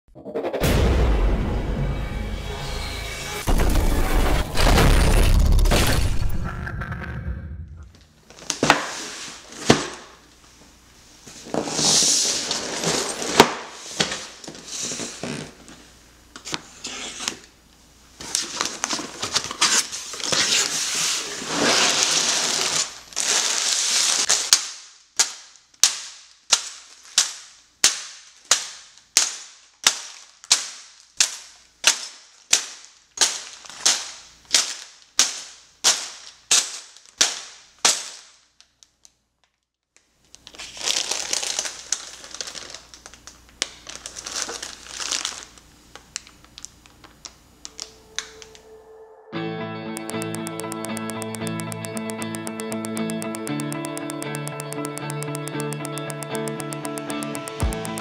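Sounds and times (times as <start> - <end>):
plastic bags crinkling: 21.9 - 24.5, 33.3 - 35.0, 40.3 - 47.9
sharp clicks: 50.0 - 58.0.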